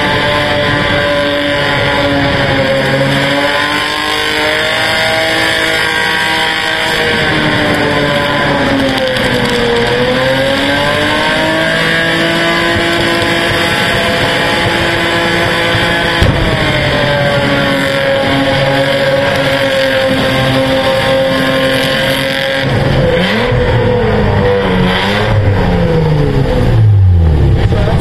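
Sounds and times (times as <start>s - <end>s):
car engine at high revs: 0.0s - 28.0s.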